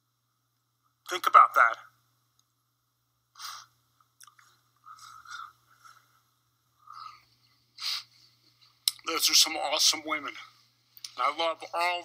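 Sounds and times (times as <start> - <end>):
wet mouth clicks: 4.2 - 4.5.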